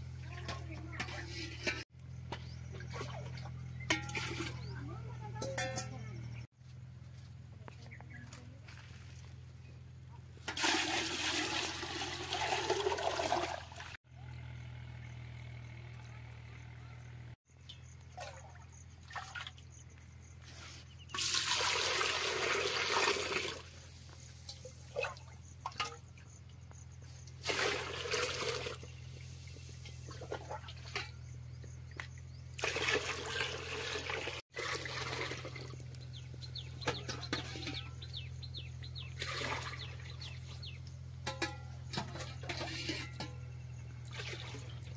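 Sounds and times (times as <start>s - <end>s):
water splashing in metal pots: 0.0s - 6.0s, 10.4s - 14.0s, 17.6s - 19.8s, 21.1s - 44.9s.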